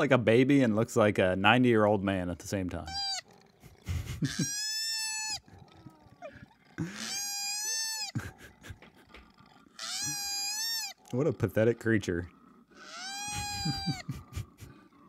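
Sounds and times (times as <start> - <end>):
koala wailing cries: 2.8 - 8.4, 9.2 - 11.2, 12.4 - 14.2
short quieter koala sounds: 2.8 - 11.2.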